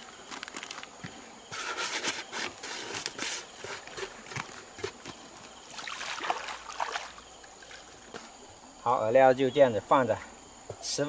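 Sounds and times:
plastic bag crinkling: 0:00.0 - 0:01.0
footsteps on loose rocks: 0:00.0 - 0:05.6.

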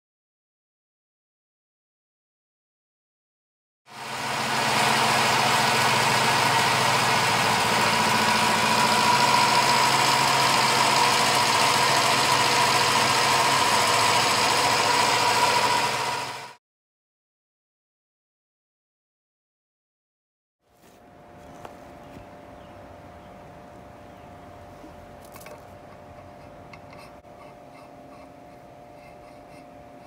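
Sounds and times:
milling machine whining: 0:03.9 - 0:16.6.

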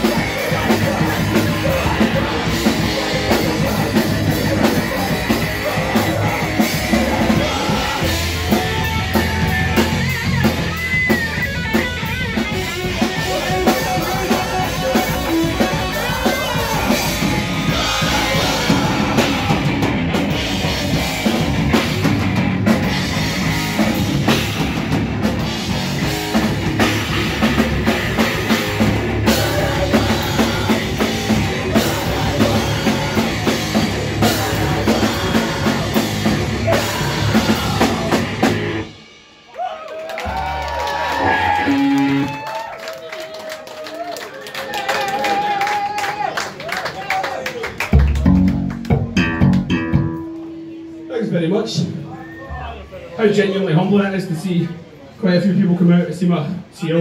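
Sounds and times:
electric guitar: 0:00.0 - 0:39.1, 0:40.2 - 0:42.8, 0:47.9 - 0:51.2
heavy rock band playing live: 0:00.0 - 0:39.5, 0:40.2 - 0:42.4, 0:47.9 - 0:52.0
drum kit: 0:00.0 - 0:42.6, 0:47.7 - 0:52.0.

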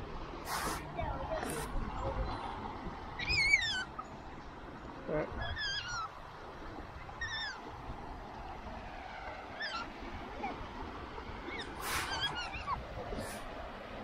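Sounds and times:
otter chirping: 0:03.2 - 0:04.2, 0:05.4 - 0:06.2, 0:11.5 - 0:13.4.

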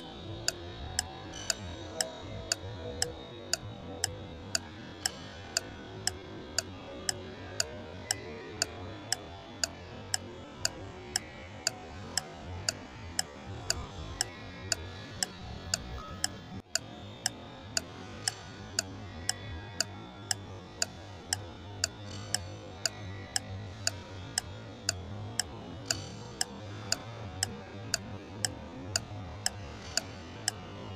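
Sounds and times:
clock ticking: 0:00.0 - 0:16.8.

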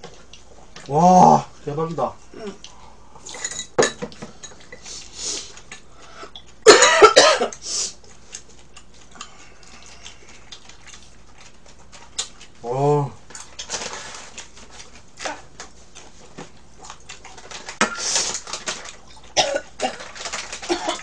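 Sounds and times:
utensils clinking on bowls: 0:03.3 - 0:04.8.

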